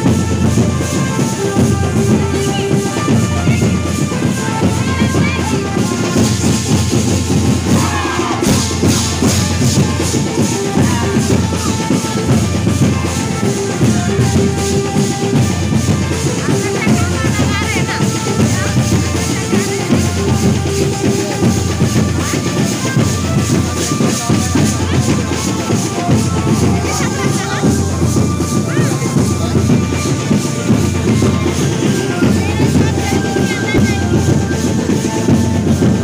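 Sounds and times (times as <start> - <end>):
driving drum beat: 0.0 - 36.0
keyboard melody: 24.1 - 36.0.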